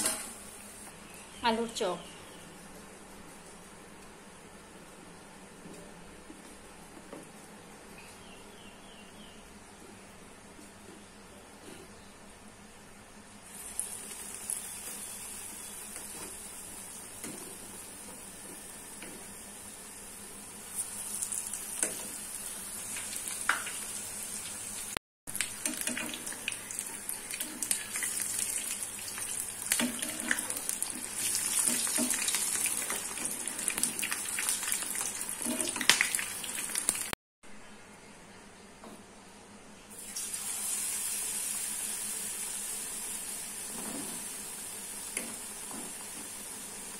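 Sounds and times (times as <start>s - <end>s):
food deep-frying in oil: 13.4s - 37.2s, 39.9s - 46.9s.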